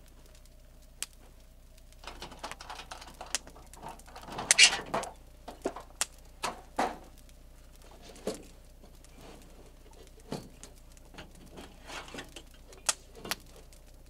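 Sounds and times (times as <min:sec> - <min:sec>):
scraping rattle: 0:02.0 - 0:07.0, 0:07.9 - 0:13.7.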